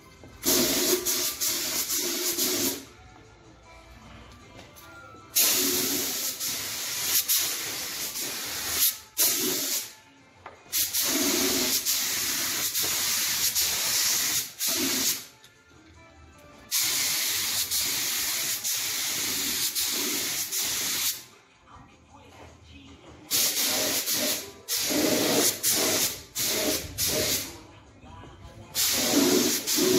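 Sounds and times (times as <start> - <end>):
spray gun hissing: 5.4 - 9.9, 23.3 - 27.5, 28.8 - 29.9.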